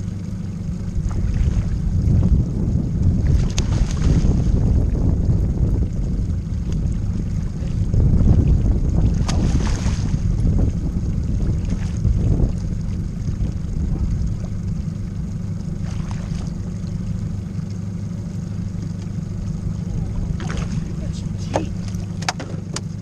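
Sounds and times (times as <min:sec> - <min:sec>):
low wind rumble on microphone: 0:00.0 - 0:23.0
fish splashing at surface: 0:09.1 - 0:10.2.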